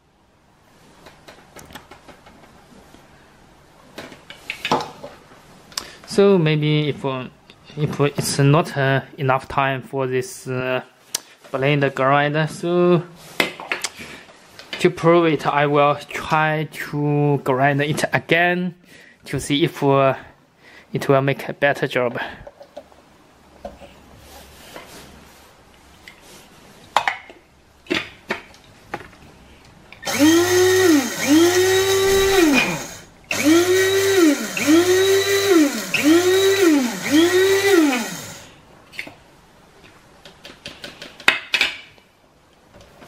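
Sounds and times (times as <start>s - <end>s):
electric coffee grinder whining: 30.0s - 38.5s.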